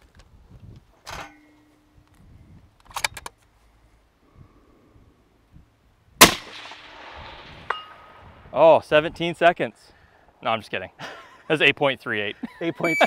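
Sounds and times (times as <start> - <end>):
rifle shot with echo: 6.2 - 8.2.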